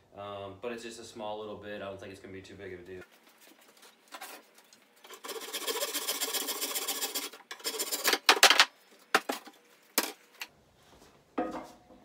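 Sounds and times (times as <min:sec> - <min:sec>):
hand saw cutting wood: 0:05.0 - 0:08.3.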